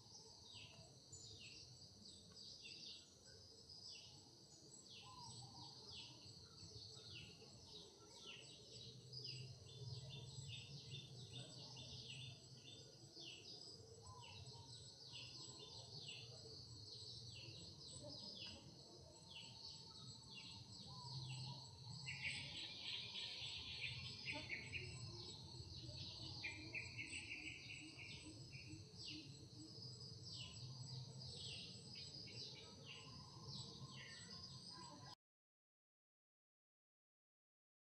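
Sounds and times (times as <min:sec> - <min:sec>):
bird chirps: 0:19.3 - 0:35.0.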